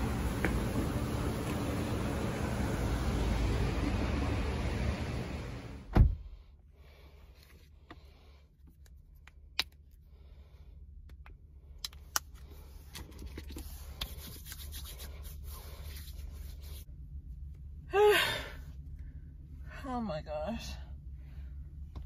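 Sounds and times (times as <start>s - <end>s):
car cabin hum: 0.0s - 6.3s.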